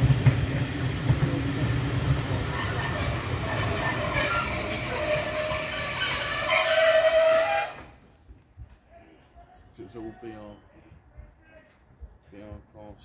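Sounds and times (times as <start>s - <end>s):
train wheels squealing: 0.0s - 8.3s.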